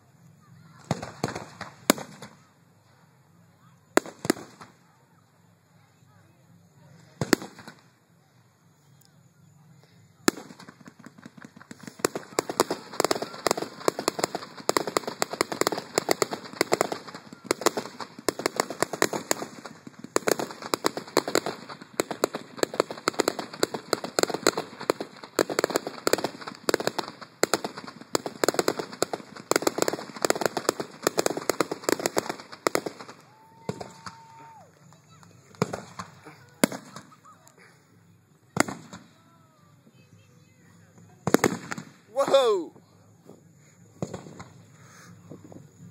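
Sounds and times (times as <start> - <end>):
fireworks popping and banging: 0.8 - 2.5, 4.0 - 4.8, 7.0 - 7.9, 10.2 - 37.6, 38.5 - 39.2, 40.9 - 45.9.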